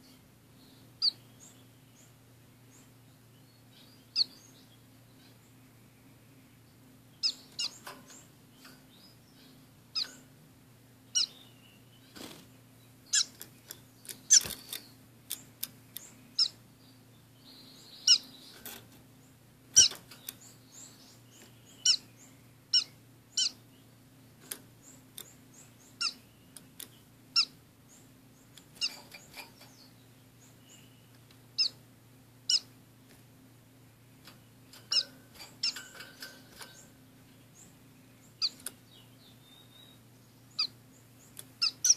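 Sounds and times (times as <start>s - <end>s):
finches giving high call notes: 11.1s - 11.6s, 13.1s - 13.4s, 19.7s - 23.6s, 24.8s - 26.3s, 34.9s - 36.8s, 37.6s - 38.6s, 41.6s - 41.9s.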